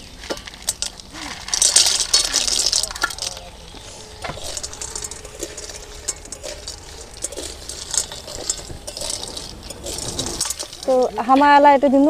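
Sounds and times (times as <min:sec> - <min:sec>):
snails sizzling in hot oil: 0:00.0 - 0:11.4.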